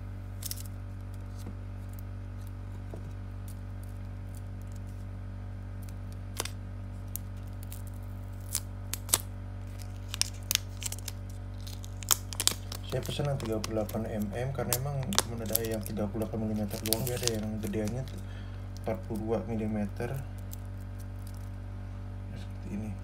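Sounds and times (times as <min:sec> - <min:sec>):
steady low hum: 0:00.0 - 0:23.0
plastic film peeling: 0:00.4 - 0:02.6, 0:05.8 - 0:21.6.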